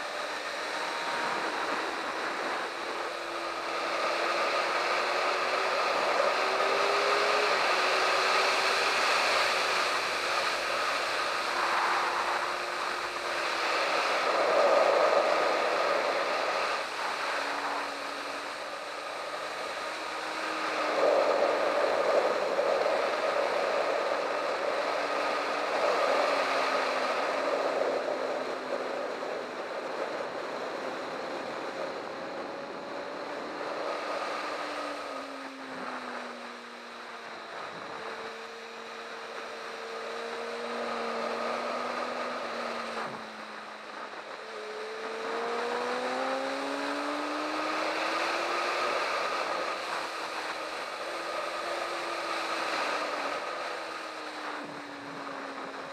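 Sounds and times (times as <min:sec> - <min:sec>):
wind rush over microphone: 0:00.0 - 0:55.9
motorcycle engine: 0:31.6 - 0:55.9.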